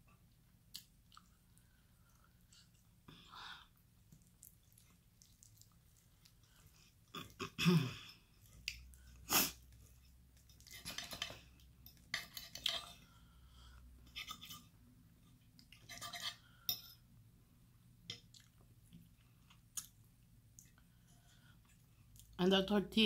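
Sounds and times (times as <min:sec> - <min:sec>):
chewing: 0:00.4 - 0:03.0, 0:04.0 - 0:07.6, 0:18.1 - 0:22.4
fork scraping on plate: 0:10.6 - 0:13.0, 0:14.0 - 0:14.8, 0:15.8 - 0:16.9.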